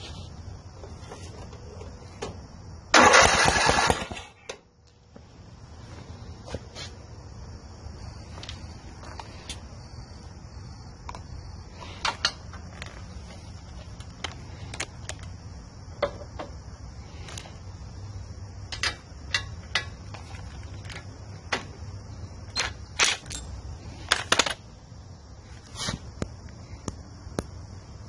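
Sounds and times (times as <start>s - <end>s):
steady high hiss: 0.0s - 3.2s
hand tools clicking and knocking: 18.7s - 21.7s.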